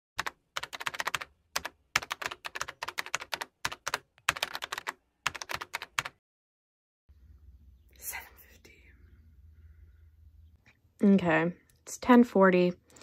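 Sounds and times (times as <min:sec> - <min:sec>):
keyboard typing: 0:00.2 - 0:06.2.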